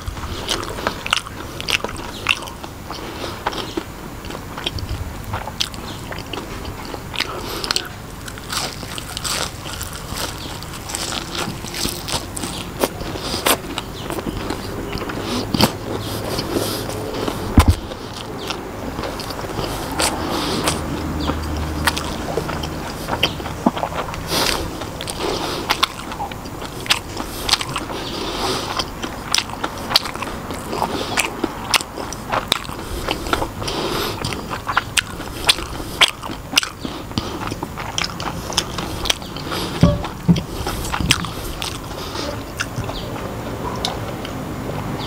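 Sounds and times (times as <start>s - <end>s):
crunchy chewing: 0.0s - 45.0s
person drinking: 35.2s - 42.7s.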